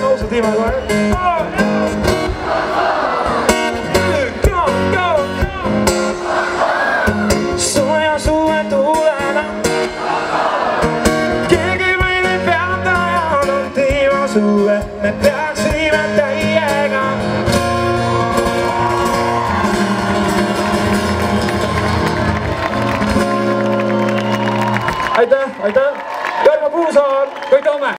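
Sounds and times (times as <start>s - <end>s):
band playing steady beat: 0.0s - 25.1s
acoustic guitar: 0.0s - 25.2s
man singing into microphone: 7.6s - 9.6s, 11.5s - 17.3s.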